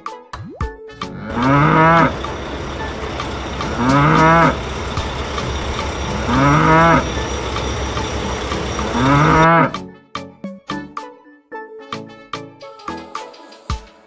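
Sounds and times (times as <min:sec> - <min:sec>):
music with a beat: 0:00.0 - 0:01.3, 0:09.7 - 0:11.2, 0:11.9 - 0:14.0
cow mooing: 0:01.1 - 0:09.8
steady background hum: 0:01.3 - 0:09.6.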